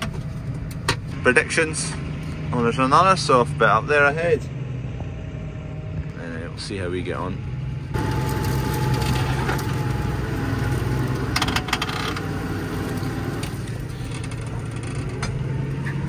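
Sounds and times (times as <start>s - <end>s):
tractor engine running under load: 7.9s - 16.0s.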